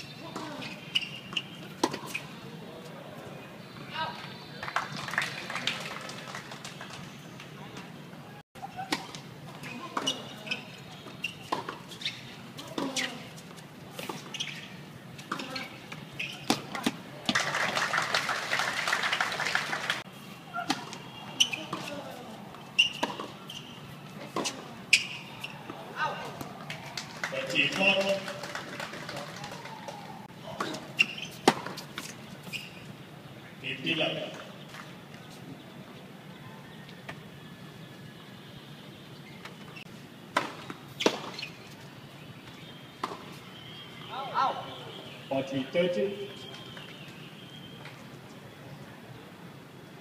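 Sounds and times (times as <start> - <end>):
tennis ball hit by rackets: 30.6 - 32.1, 40.3 - 41.4, 43.0 - 43.4.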